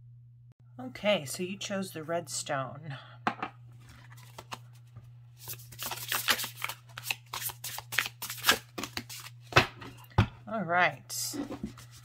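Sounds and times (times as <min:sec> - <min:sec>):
cards being shuffled: 0:03.8 - 0:09.6.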